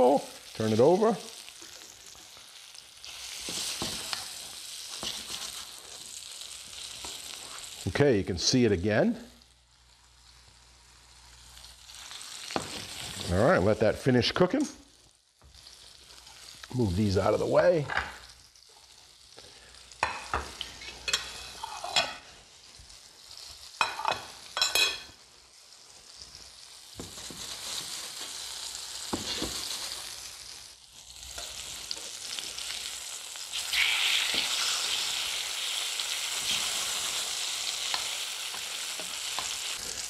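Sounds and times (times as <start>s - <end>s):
fish sizzling in hot oil: 0.0s - 8.2s, 9.4s - 13.8s, 14.9s - 40.0s
spatula working in pan: 3.0s - 7.8s.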